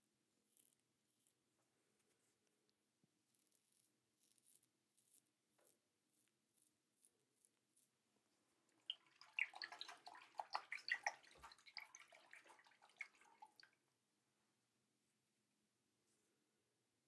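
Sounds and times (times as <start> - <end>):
water splashing and dripping: 8.8 - 13.8.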